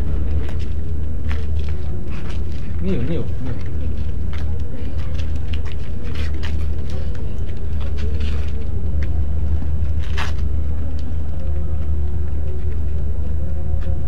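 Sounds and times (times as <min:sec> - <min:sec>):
low rumble: 0:00.0 - 0:14.0.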